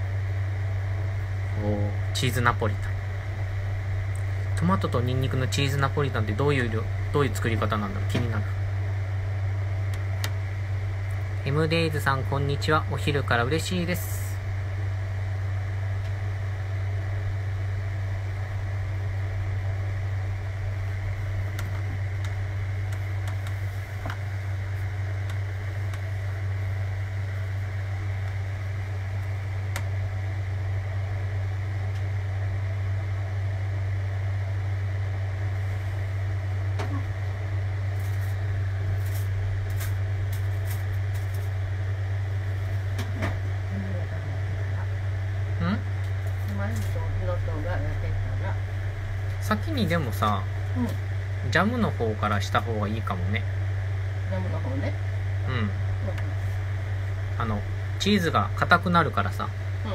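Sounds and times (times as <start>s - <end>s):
fan humming: 0.0s - 59.9s.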